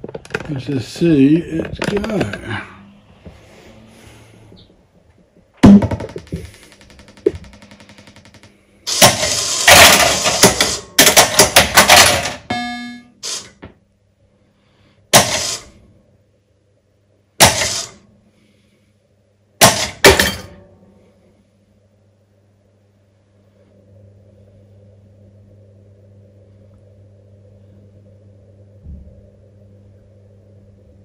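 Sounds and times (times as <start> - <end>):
low mains hum: 0.0 - 31.0
pinball machine thunk: 5.6 - 6.6, 8.9 - 13.0, 15.2 - 15.6, 17.4 - 17.9, 19.6 - 20.7
pinball machine clattering: 5.6 - 13.0, 19.6 - 20.6
brief tone: 12.4 - 13.2.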